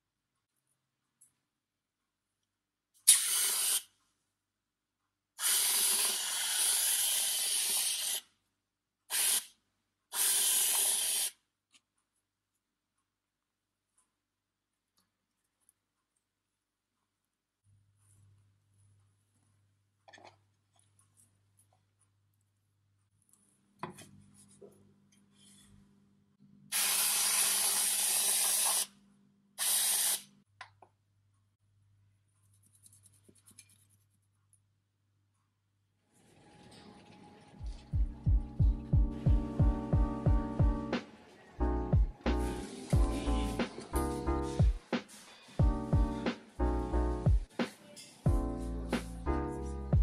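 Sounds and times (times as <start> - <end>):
whipped cream can hissing: 3.1 - 3.9, 5.4 - 8.3, 9.1 - 9.5, 10.1 - 11.4, 26.7 - 28.9, 29.6 - 30.3.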